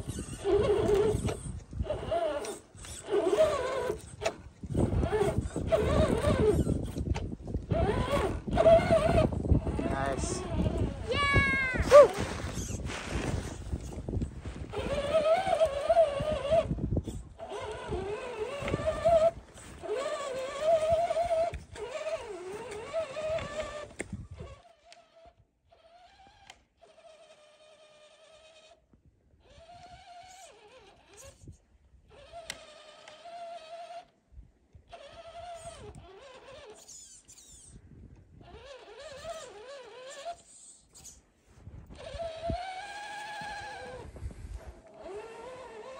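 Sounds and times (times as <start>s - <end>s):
electric motor and gears whining: 0.0s - 45.9s.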